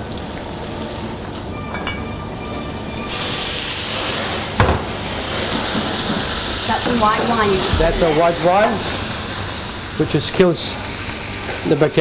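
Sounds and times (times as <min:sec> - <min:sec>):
wine hissing in hot pan: 0:03.0 - 0:12.0
vegetables frying in a pan: 0:03.1 - 0:12.0
sharp knock: 0:07.7 - 0:08.4.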